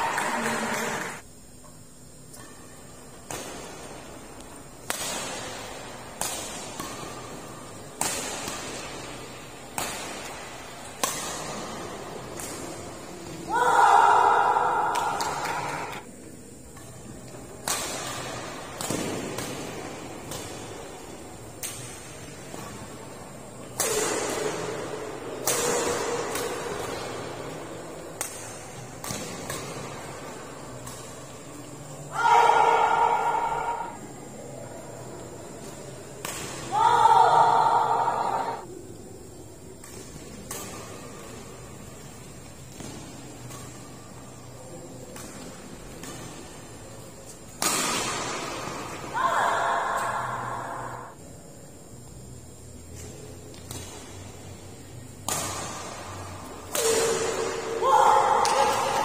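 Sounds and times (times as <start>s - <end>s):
rackets smacking a shuttlecock: 3.2s - 13.4s, 14.8s - 31.7s, 35.5s - 36.7s, 39.8s - 49.1s, 53.0s - 54.3s, 55.2s - 59.0s.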